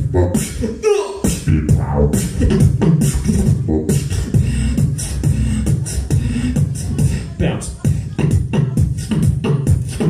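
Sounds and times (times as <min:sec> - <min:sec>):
beatboxing into microphone: 0:00.0 - 0:10.0.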